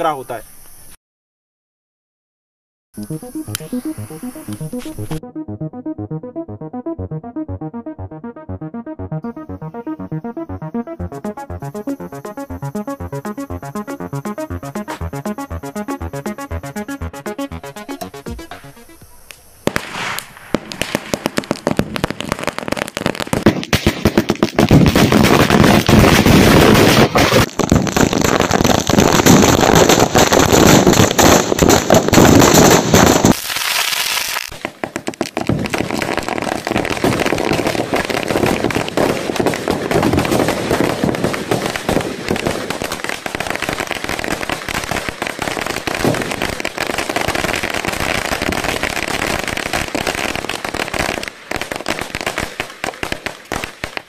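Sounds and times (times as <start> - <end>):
firecrackers bursting: 11.2 - 54.0.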